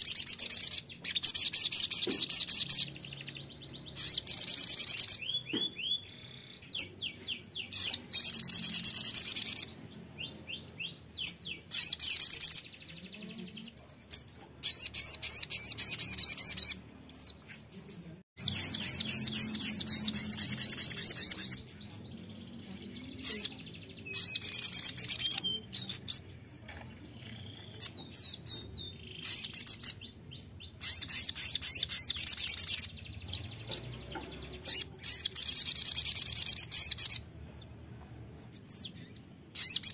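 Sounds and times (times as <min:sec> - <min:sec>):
bird chips and slurred notes: 0:18.4 - 0:26.5.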